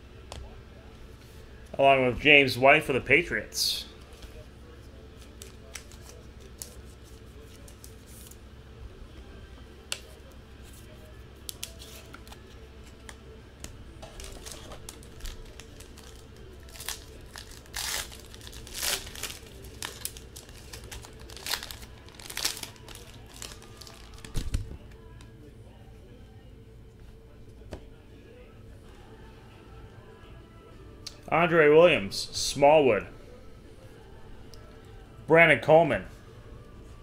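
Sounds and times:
wrapper crinkling and tearing: 14.0s - 24.6s.

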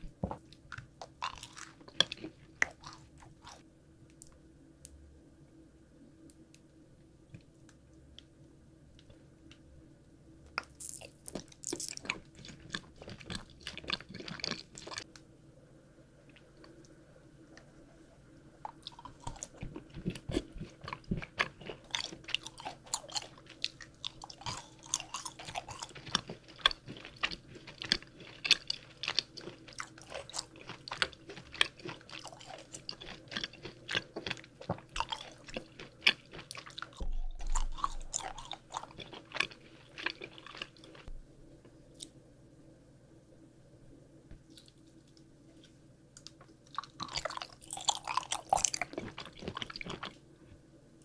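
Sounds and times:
person chewing crunchy candy: 0.0s - 3.6s, 10.6s - 15.1s, 18.7s - 41.1s, 46.2s - 50.2s.

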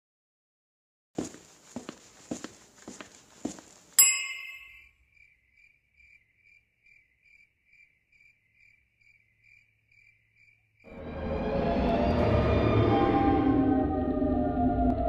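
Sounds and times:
cricket chirping: 4.0s - 11.0s
low rumbling siren drone: 10.9s - 15.0s.

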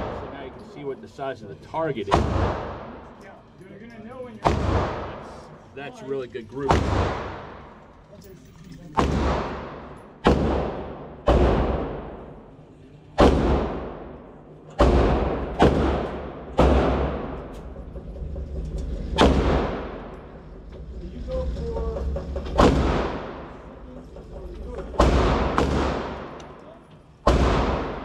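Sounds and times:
echoing gunshots: 0.0s - 0.5s, 2.1s - 3.0s, 4.4s - 5.3s, 6.7s - 7.8s, 9.0s - 12.5s, 13.2s - 17.9s, 18.9s - 20.6s, 22.4s - 23.7s, 25.0s - 26.6s, 27.2s - 28.0s.

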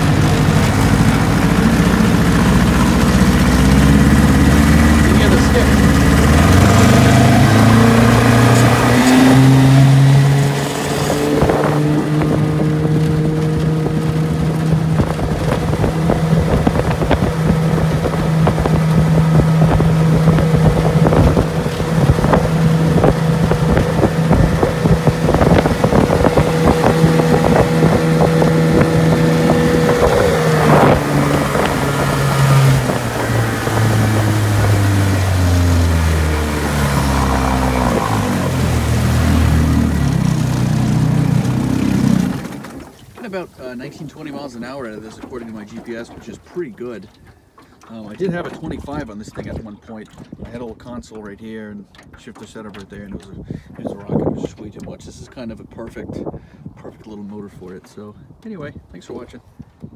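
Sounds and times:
outboard motor running: 0.0s - 59.9s
wind buffeting microphone: 0.0s - 59.9s.

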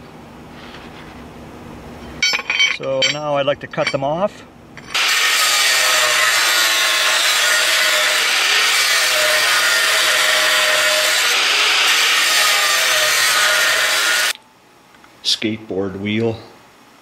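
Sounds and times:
angle grinder cutting steel: 4.8s - 14.4s.

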